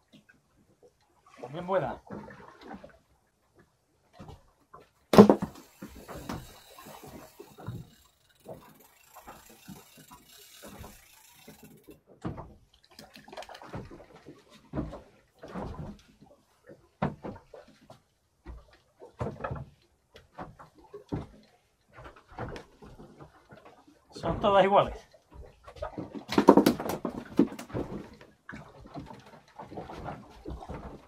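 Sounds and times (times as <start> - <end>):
fishing tackle knocking and rattling: 5.2 - 14.1.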